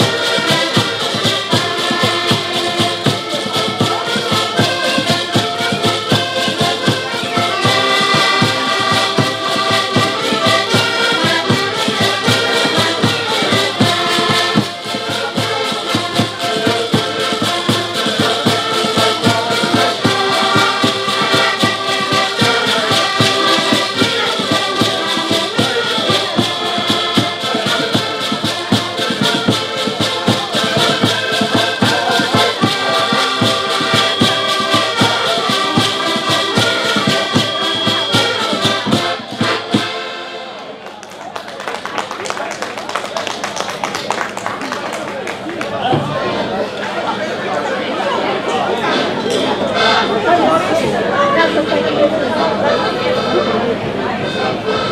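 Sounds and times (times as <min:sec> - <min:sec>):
shaken or scraped percussion: 0:00.0 - 0:39.8
button accordions playing melody: 0:00.0 - 0:40.8, 0:48.3 - 0:54.9
plucked string instrument: 0:00.0 - 0:40.9, 0:45.4 - 0:54.9
bass drum beat: 0:13.5 - 0:39.9.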